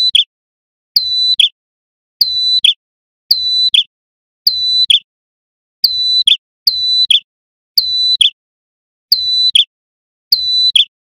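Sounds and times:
bird whistling call: 1.3 - 1.6, 2.6 - 2.8, 10.6 - 11.0.

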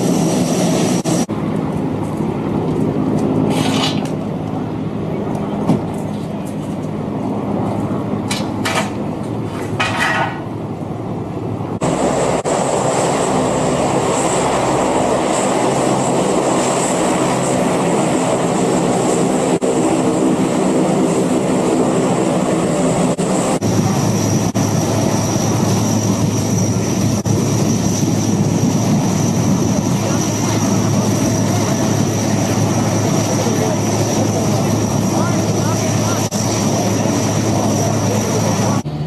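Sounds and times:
helicopter engine and rotor: 0.0 - 39.0.

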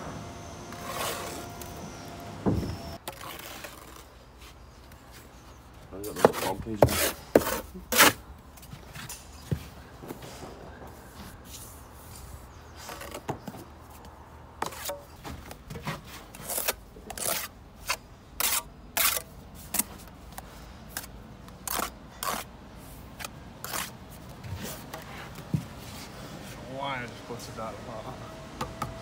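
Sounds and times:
trowel scraping mortar: 0.7 - 1.7, 6.0 - 8.2, 16.0 - 19.9, 21.0 - 22.5, 23.2 - 24.0.

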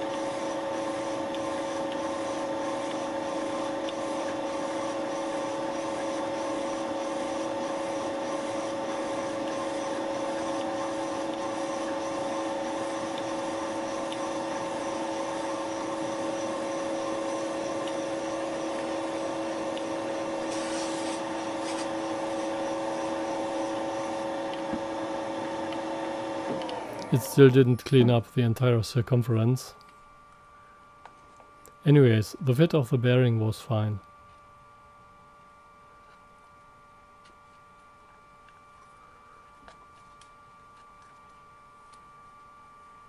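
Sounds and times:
milling machine hum: 0.0 - 43.0
high hiss: 20.5 - 21.9.

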